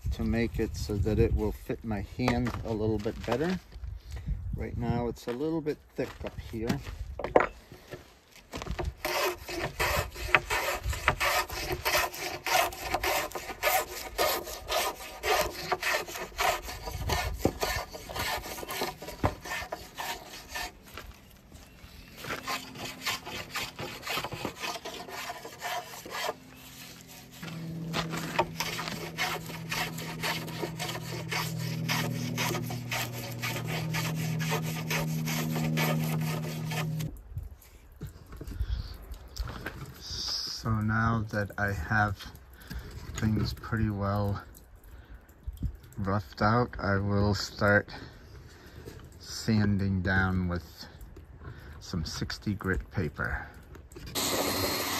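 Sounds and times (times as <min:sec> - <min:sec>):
hand plane rasping on wood: 0:09.0 - 0:21.0, 0:22.2 - 0:37.1
steady low hum: 0:09.4 - 0:37.2.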